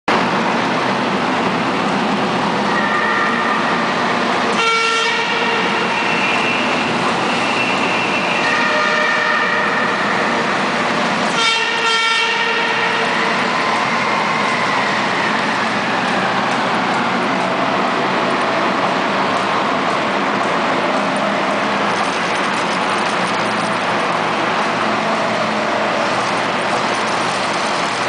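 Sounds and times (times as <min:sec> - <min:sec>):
military vehicles driving in tunnel: 0:00.1 - 0:28.0
vehicle horns: 0:02.7 - 0:03.8, 0:04.5 - 0:10.6, 0:11.3 - 0:13.4.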